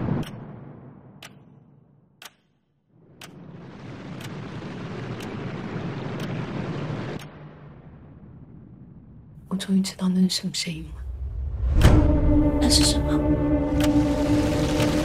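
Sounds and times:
clock-like tick: 0:00.1 - 0:00.4, 0:01.2 - 0:01.6, 0:02.2 - 0:02.6, 0:03.2 - 0:03.4, 0:04.2 - 0:04.4, 0:11.7 - 0:12.0, 0:12.6 - 0:13.1, 0:13.7 - 0:15.0
low rumbling noise: 0:02.9 - 0:10.0, 0:10.8 - 0:15.0.

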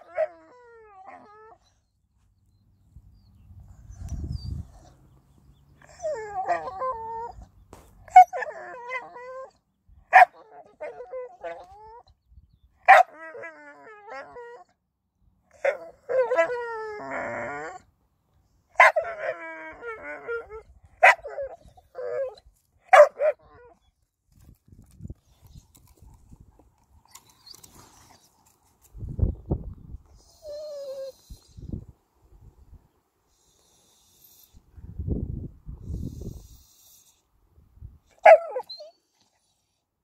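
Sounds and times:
dog yipping: 0:08.0 - 0:09.5, 0:10.1 - 0:12.0, 0:12.8 - 0:13.5, 0:18.8 - 0:19.4, 0:20.3 - 0:23.7, 0:38.2 - 0:39.0.

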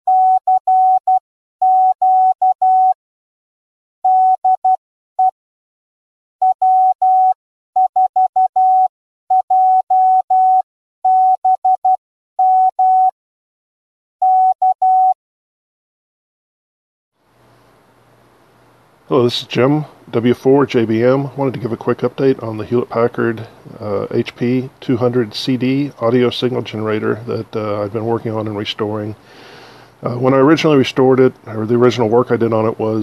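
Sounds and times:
morse code beeps: 0:00.1 - 0:03.0, 0:04.1 - 0:05.3, 0:06.4 - 0:13.1, 0:14.2 - 0:15.2.

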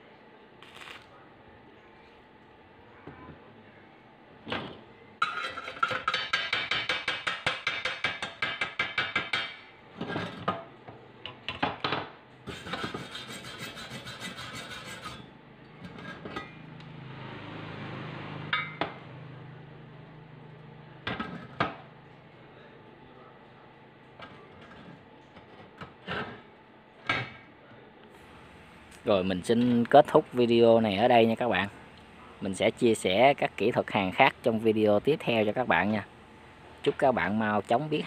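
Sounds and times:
wire brush scrubbing metal: 0:12.5 - 0:15.3.

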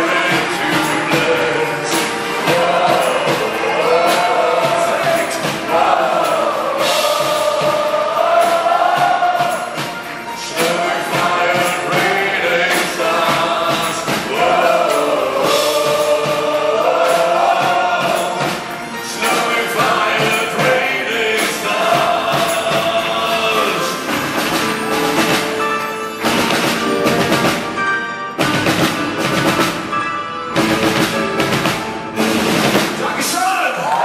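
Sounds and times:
man singing: 0:00.0 - 0:07.7, 0:10.4 - 0:24.2
live rock band with strings: 0:00.0 - 0:34.0
percussion hits: 0:00.0 - 0:34.0.

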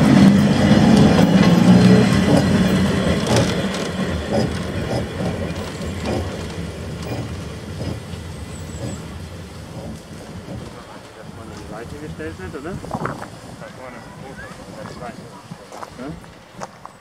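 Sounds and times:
wheels knocking over rail joints: 0:00.0 - 0:13.5
diesel locomotive engine: 0:00.0 - 0:17.0.

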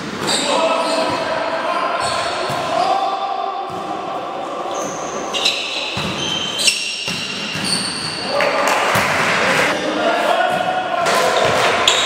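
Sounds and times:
sneakers squeaking on court: 0:00.0 - 0:01.2, 0:04.7 - 0:08.3, 0:11.4 - 0:12.0
players' voices: 0:00.2 - 0:06.8, 0:07.6 - 0:12.0.

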